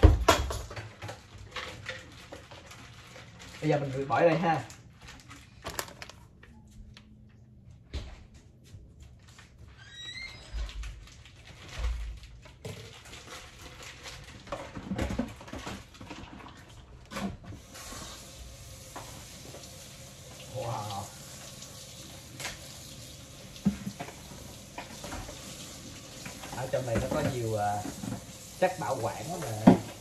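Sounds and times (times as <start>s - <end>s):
dishes clinking and knocking: 0.0s - 1.0s
plastic bag rustling: 0.9s - 6.5s, 10.6s - 19.5s
faucet water splashing into sink: 17.6s - 30.0s.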